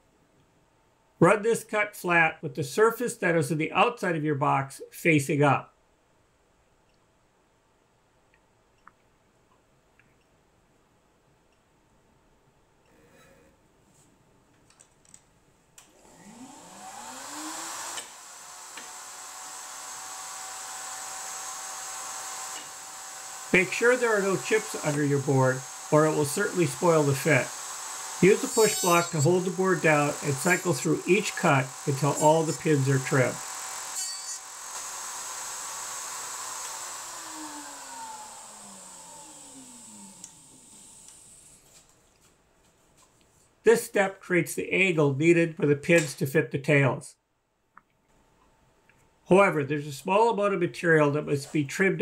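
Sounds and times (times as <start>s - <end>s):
router motor running: 15.9s - 41.6s.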